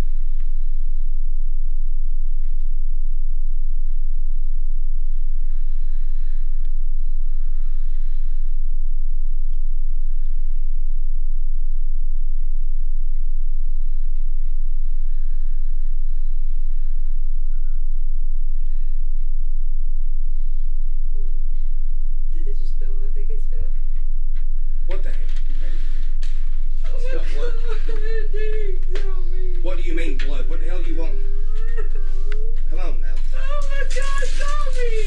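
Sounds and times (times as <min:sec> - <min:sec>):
loud low hum: 0:00.0 - 0:35.0
faint indistinct voices: 0:24.7 - 0:35.0.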